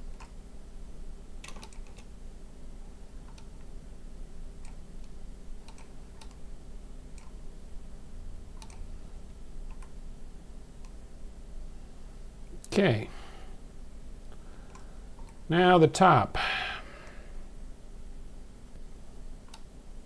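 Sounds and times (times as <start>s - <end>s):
computer mouse clicking: 0.0s - 0.4s, 1.4s - 2.1s, 3.2s - 3.7s, 4.6s - 6.4s, 7.1s - 7.4s, 8.5s - 8.9s, 9.7s - 10.0s, 19.4s - 19.7s
steady low hum: 0.0s - 20.0s.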